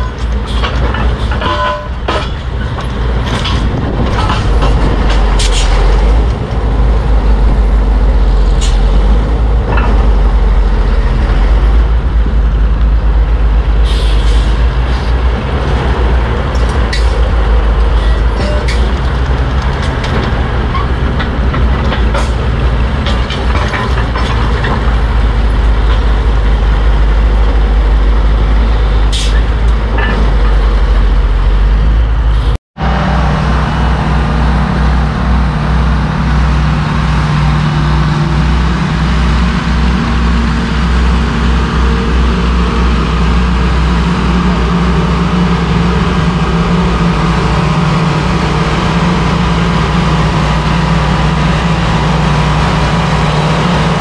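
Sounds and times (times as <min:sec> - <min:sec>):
metal clanks: 0:00.0 - 0:06.7, 0:16.5 - 0:26.3
heavy earthmover engines running: 0:00.0 - 0:54.0.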